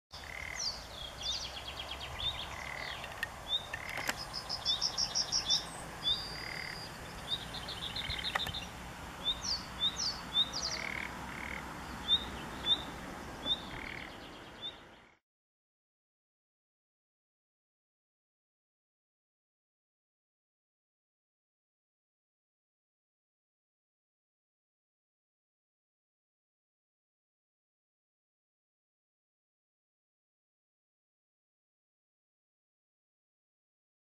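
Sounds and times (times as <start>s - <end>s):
birds chirping and trilling: 0.2s - 15.2s
frogs croaking: 0.2s - 15.2s.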